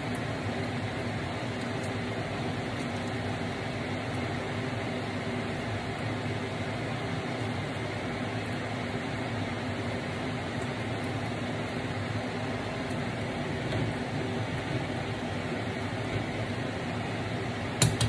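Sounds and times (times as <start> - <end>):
fan whirring: 0.0 - 18.0.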